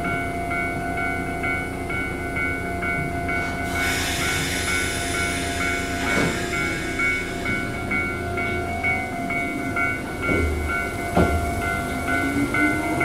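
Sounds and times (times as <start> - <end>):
air hissing: 3.4 - 8.5.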